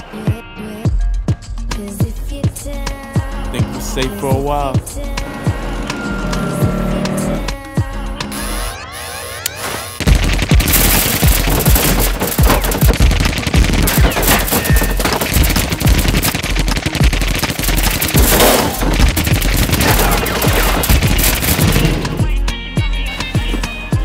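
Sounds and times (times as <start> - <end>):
music: 0.0 - 24.0
rapid gunfire: 9.9 - 22.4.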